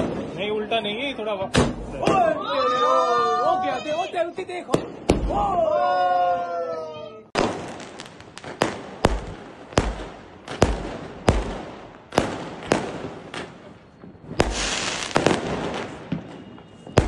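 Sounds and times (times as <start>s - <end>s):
fireworks bangs: 0.0s - 2.5s, 4.6s - 5.9s, 7.4s - 17.0s
fireworks crackling: 7.4s - 17.0s.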